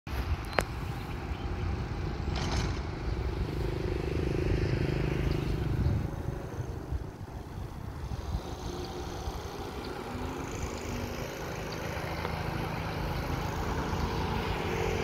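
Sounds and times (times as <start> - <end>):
vehicle engine passing by: 0.8 - 15.0.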